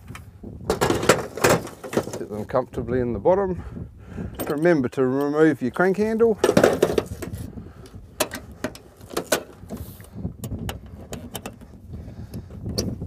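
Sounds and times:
sharp clicks and knocks: 8.2 - 9.8, 10.4 - 11.7.

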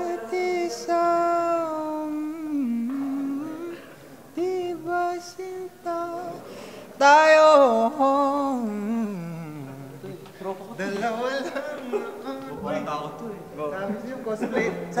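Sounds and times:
man singing unaccompanied: 0.0 - 10.2.

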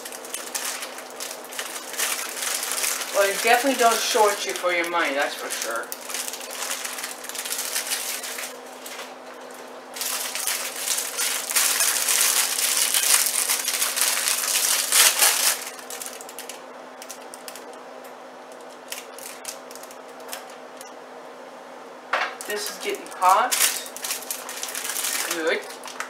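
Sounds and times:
toppings shaken into plastic bowl: 0.0 - 8.5, 10.0 - 16.3, 23.2 - 25.9
plastic packaging crinkling: 0.0 - 17.8, 18.5 - 20.6, 22.4 - 26.0.

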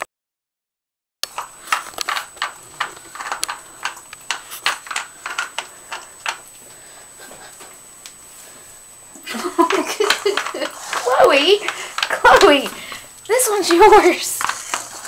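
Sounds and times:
plastic cups clicking on floor: 1.3 - 6.5, 9.2 - 15.0.

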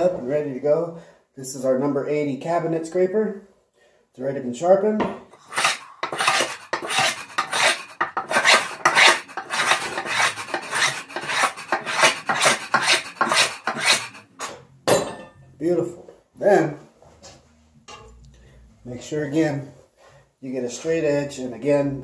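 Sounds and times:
cabinet scraper scraping wood: 5.4 - 14.6.

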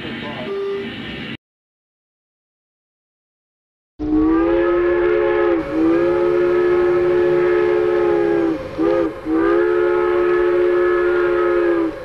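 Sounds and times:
train whistle blowing chord: 4.0 - 12.0.

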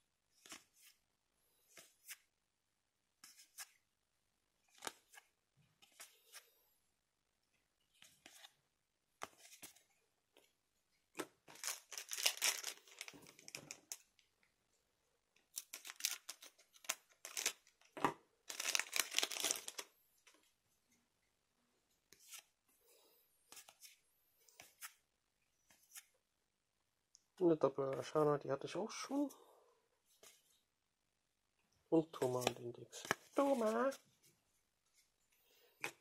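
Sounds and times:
cards clicking and rustling: 4.7 - 5.2, 11.2 - 14.1, 15.5 - 19.9, 32.2 - 34.0
foil pack crinkling and tearing: 11.5 - 13.9, 15.6 - 17.6, 18.5 - 19.9.

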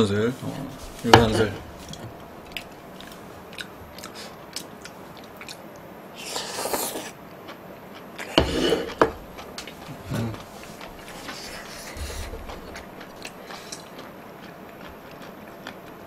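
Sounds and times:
soft chewing: 0.5 - 16.0
slurping: 8.2 - 14.0.

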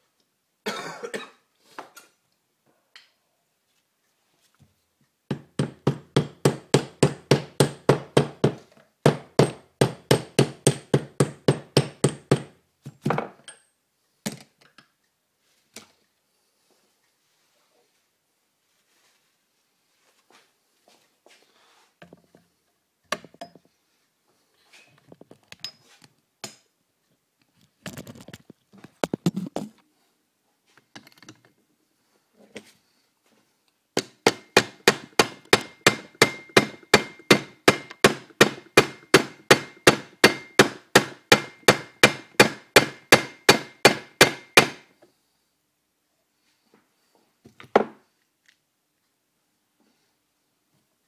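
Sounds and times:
hammer striking metal: 34.0 - 44.8.

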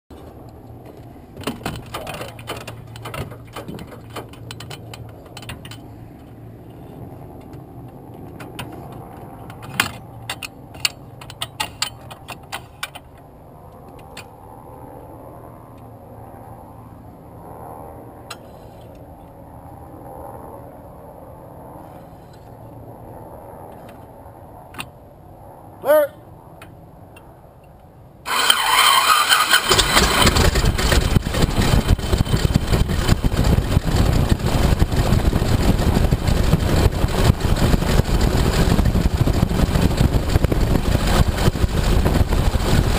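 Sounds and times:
steady low hum: 29.8 - 42.9.

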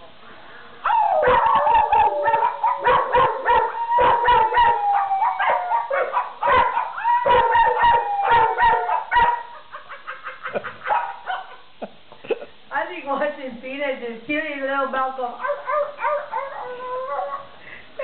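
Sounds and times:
dogs howling: 0.8 - 9.6, 15.4 - 17.5
dogs yapping barks: 0.8 - 11.6, 15.4 - 17.5.

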